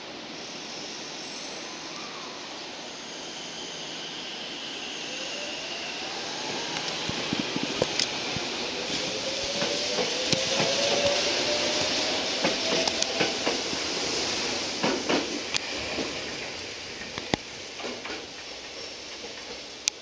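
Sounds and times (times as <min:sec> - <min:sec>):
wheels clicking over rails: 0:06.7 - 0:13.9, 0:14.8 - 0:20.0.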